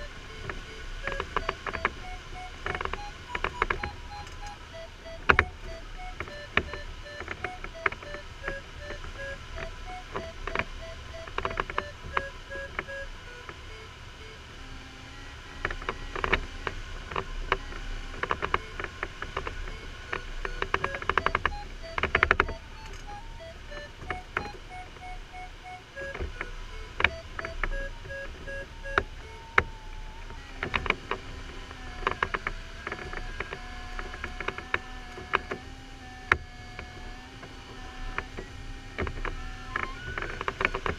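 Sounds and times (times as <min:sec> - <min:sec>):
variometer beeping: 0:00.0 - 0:40.9
cockpit clicks and knocks: 0:00.3 - 0:13.0, 0:18.2 - 0:31.2.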